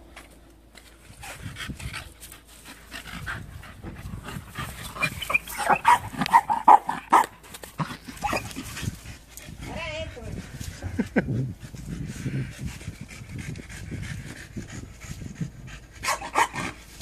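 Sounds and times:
dog breathing hard: 1.1s - 17.0s
dog yelping: 5.0s - 7.3s, 8.0s - 8.6s, 16.0s - 16.7s.

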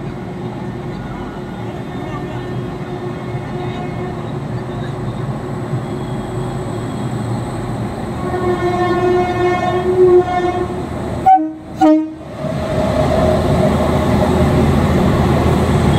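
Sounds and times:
locomotive horn blasts: 8.2s - 12.2s.

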